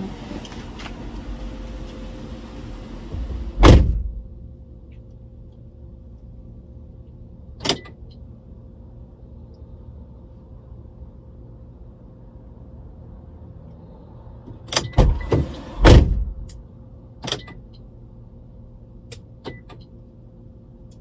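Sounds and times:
car door slamming: 3.1s - 4.2s, 14.6s - 16.5s.

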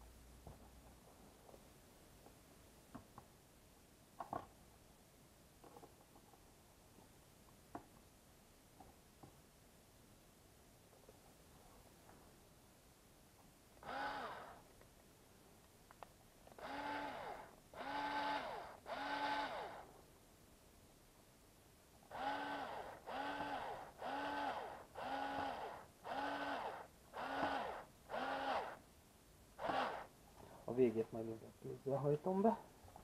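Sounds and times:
electric screwdriver whirring: 13.8s - 14.6s, 16.6s - 19.9s, 22.1s - 28.8s, 29.6s - 30.1s.

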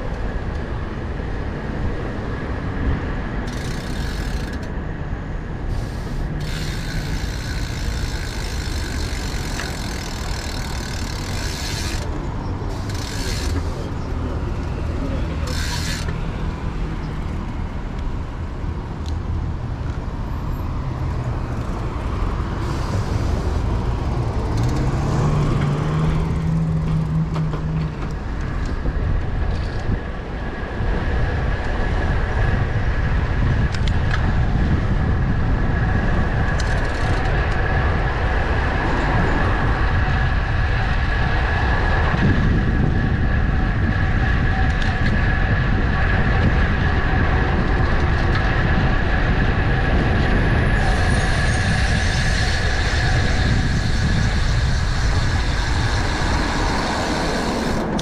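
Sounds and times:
city traffic: 0.0s - 58.0s
wind and road rumble: 0.0s - 58.0s
steady high whine: 3.2s - 18.6s.

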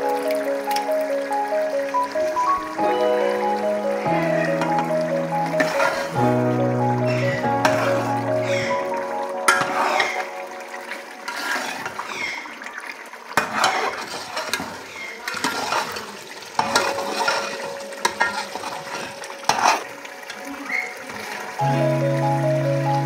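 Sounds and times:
meat sizzling: 0.0s - 12.5s, 13.4s - 22.8s
ladle scraping a pot: 5.6s - 6.2s, 11.2s - 12.4s, 13.4s - 19.9s.

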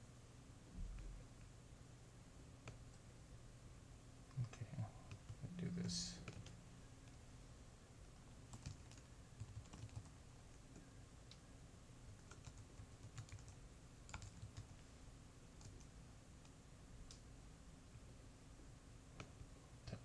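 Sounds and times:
faint keyboard typing: 4.2s - 7.2s, 8.4s - 11.5s, 12.1s - 14.9s, 15.5s - 17.3s.

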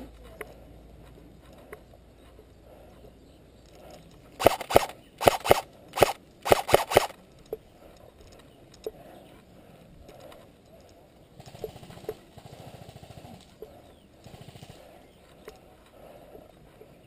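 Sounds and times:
airsoft rifle shots: 4.4s - 7.2s.

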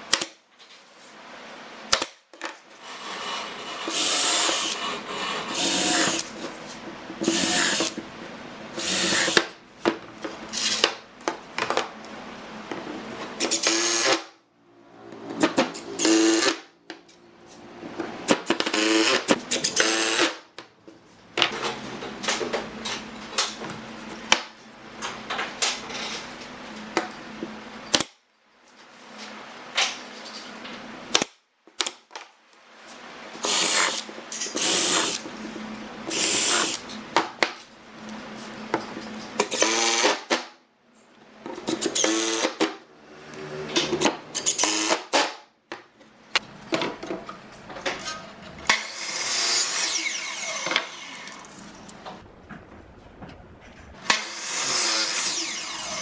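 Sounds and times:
cordless drill boring into wood: 3.3s - 6.3s, 7.2s - 8.0s, 8.8s - 9.4s, 13.5s - 14.2s, 18.7s - 20.3s, 33.4s - 34.0s, 36.1s - 36.8s, 39.5s - 40.2s, 42.0s - 42.6s, 44.4s - 45.1s, 54.1s - 56.0s.

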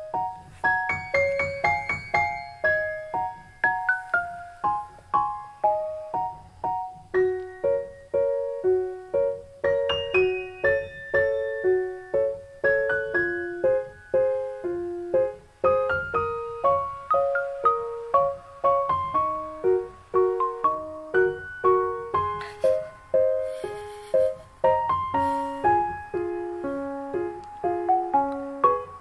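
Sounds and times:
gentle piano melody: 0.0s - 29.0s.

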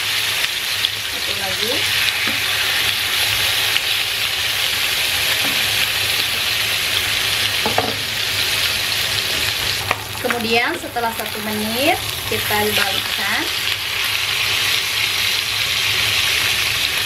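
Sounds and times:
meat sizzling in oil: 0.0s - 17.0s
crackles and pops: 9.4s - 11.4s.

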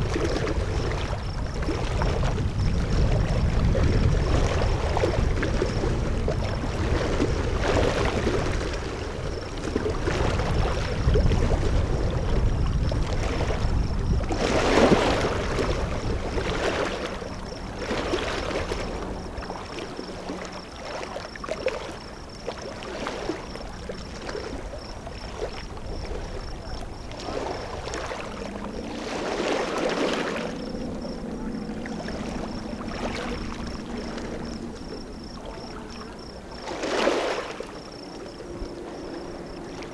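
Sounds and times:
wind buffeting microphone: 0.0s - 20.2s
low steady hum: 0.0s - 39.9s
water lapping and splashing: 0.0s - 39.9s.

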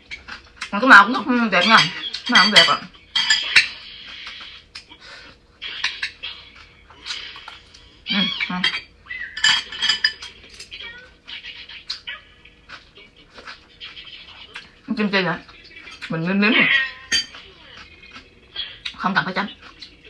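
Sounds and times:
utensils clinking on ceramic bowl: 1.6s - 3.8s, 8.3s - 10.8s, 15.9s - 17.5s
close-up chewing: 17.3s - 20.0s.

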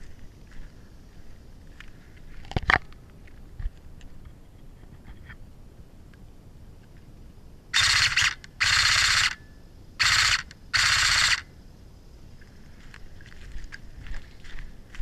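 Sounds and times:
airsoft gun full-auto bursts: 7.8s - 9.4s, 10.0s - 11.5s.

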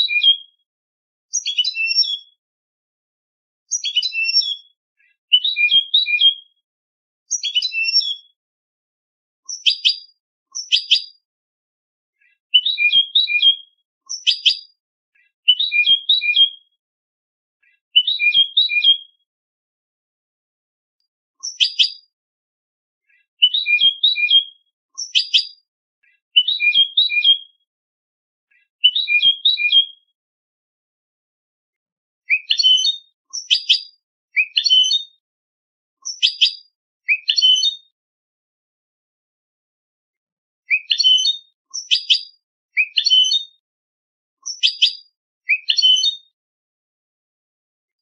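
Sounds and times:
bird twittering song: 0.0s - 0.6s, 1.3s - 2.4s, 3.7s - 6.6s, 7.3s - 8.4s, 9.5s - 11.2s, 12.3s - 16.8s, 17.7s - 19.2s, 21.4s - 22.1s, 23.1s - 25.6s, 26.4s - 27.6s, 28.5s - 30.1s, 32.3s - 35.2s, 36.0s - 37.9s, 40.7s - 43.4s, 44.4s - 46.3s.

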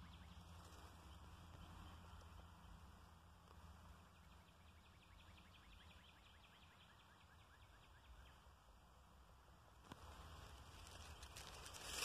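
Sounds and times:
songbird trill: 0.0s - 8.9s
low steady rumble: 0.0s - 12.0s.

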